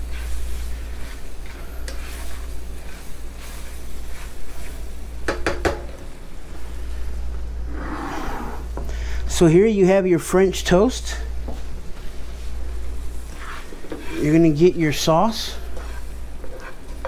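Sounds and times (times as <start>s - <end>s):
spatula scraping skillet: 0.0s - 5.6s, 13.1s - 17.0s
sauce sizzling: 0.0s - 7.8s
spatula knocking against pan: 5.2s - 5.9s.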